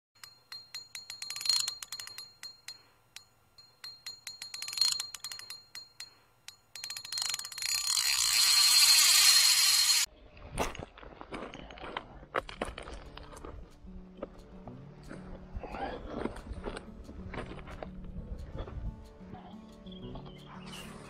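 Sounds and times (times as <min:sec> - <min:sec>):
ticking clicks: 0:00.2 - 0:10.1.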